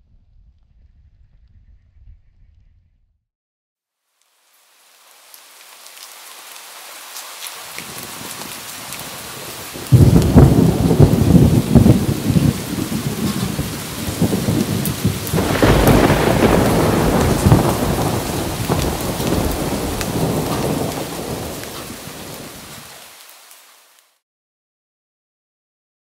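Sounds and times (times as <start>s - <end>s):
steady rain: 4.0s - 24.2s
thunder rumbling: 7.8s - 23.0s.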